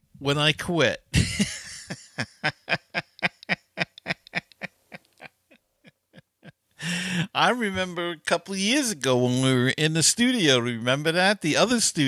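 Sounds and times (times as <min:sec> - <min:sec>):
man laughing: 0:01.1 - 0:05.5, 0:06.1 - 0:07.8.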